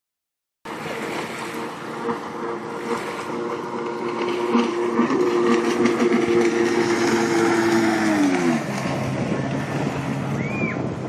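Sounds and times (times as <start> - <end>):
jet ski engine drone: 0.7 - 11.0.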